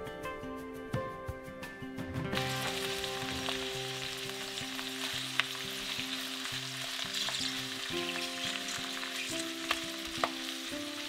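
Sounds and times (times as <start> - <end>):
food frying in oil: 2.4 - 11.0.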